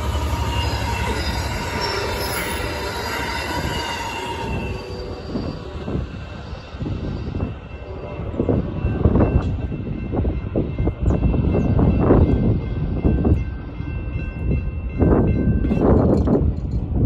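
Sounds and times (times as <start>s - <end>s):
thin wheel squeal: 0.0s - 5.8s
train wheels rumbling on rails: 0.0s - 17.0s.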